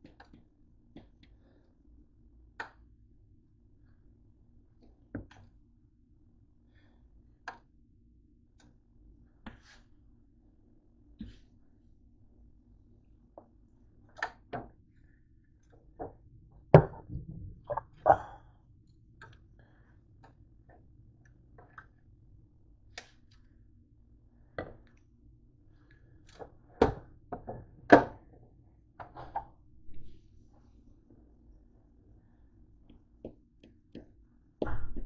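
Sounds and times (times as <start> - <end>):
faint steady hum: 0.0 - 35.0
kitchenware knocks and clunks: 16.0 - 18.4.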